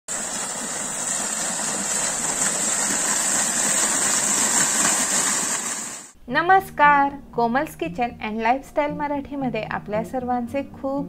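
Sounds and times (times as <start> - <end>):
water gushing and splashing: 0.1 - 6.2.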